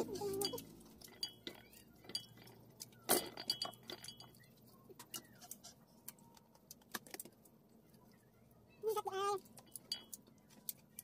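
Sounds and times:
spoon clinking and scraping in pot: 0:00.0 - 0:05.8.

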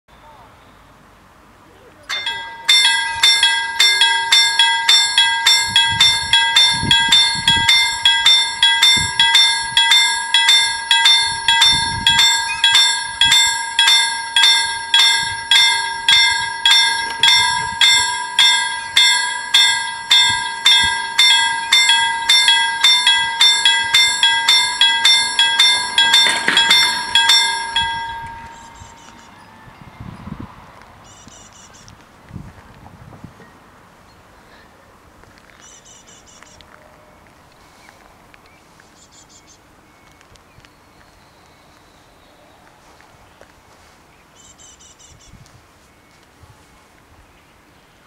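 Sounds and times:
level-crossing warning bells ringing: 0:02.1 - 0:30.4.

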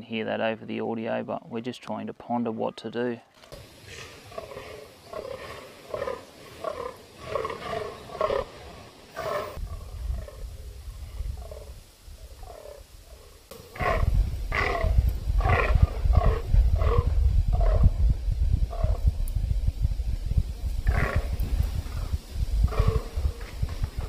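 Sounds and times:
deer croaking groans: 0:03.5 - 0:18.1, 0:18.7 - 0:19.0, 0:20.8 - 0:22.0, 0:22.6 - 0:24.0.

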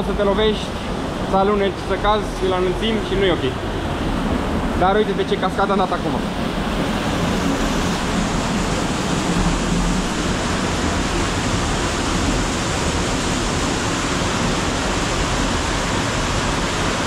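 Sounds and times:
waterfall rushing: 0:00.0 - 0:17.0.

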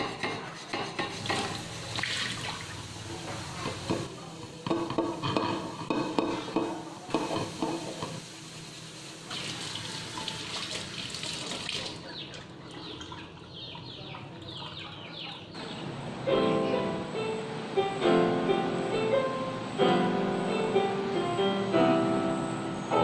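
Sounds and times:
tap water running into pan: 0:01.1 - 0:04.1, 0:07.1 - 0:12.0.

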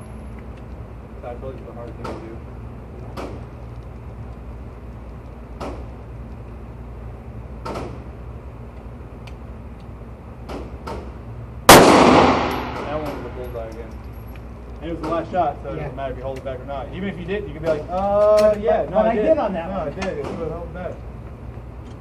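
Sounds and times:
steady low hum: 0:00.0 - 0:22.0
pistol shot echoing: 0:11.7 - 0:13.4.

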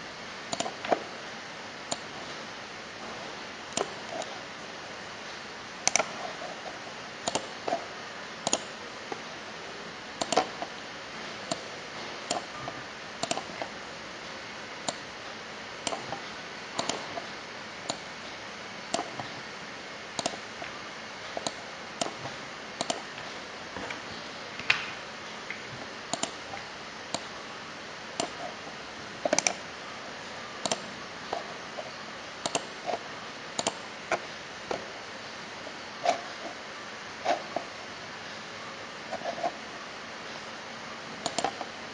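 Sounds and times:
steady low hiss: 0:00.0 - 0:41.9
computer mouse clicking: 0:00.5 - 0:01.0, 0:01.9 - 0:02.1, 0:03.7 - 0:04.4, 0:05.9 - 0:07.8, 0:08.4 - 0:09.2, 0:10.2 - 0:10.7, 0:11.5 - 0:12.5, 0:13.2 - 0:13.7, 0:14.8 - 0:15.1, 0:15.8 - 0:16.2, 0:16.8 - 0:18.1, 0:18.9 - 0:19.4, 0:20.2 - 0:23.2, 0:25.5 - 0:27.3, 0:28.2 - 0:28.6, 0:29.2 - 0:29.6, 0:30.6 - 0:31.8, 0:32.4 - 0:33.0, 0:33.6 - 0:34.8, 0:41.2 - 0:41.7.

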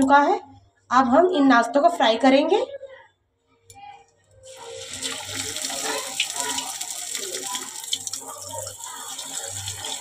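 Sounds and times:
patties deep-frying crackling sizzle: 0:04.5 - 0:10.0.

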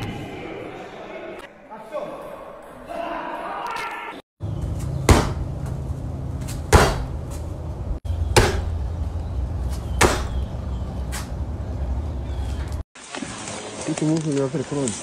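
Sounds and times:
kicks thudding on punching bag: 0:05.0 - 0:05.5, 0:06.4 - 0:07.4, 0:08.3 - 0:08.8, 0:10.0 - 0:10.4.

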